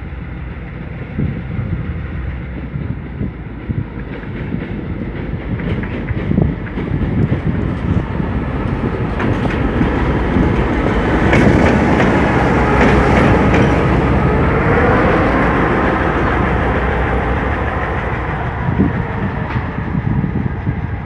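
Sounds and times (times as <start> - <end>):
diesel locomotive rumble: 0.0 - 21.0
wheels clicking over rail joints: 0.6 - 20.7.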